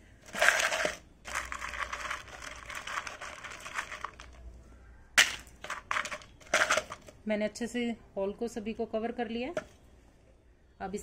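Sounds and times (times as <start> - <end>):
gravel clattering in plastic pot: 0.2 - 4.4, 5.2 - 7.2
gravel stones clicking and scraping: 0.2 - 4.4, 5.2 - 7.2.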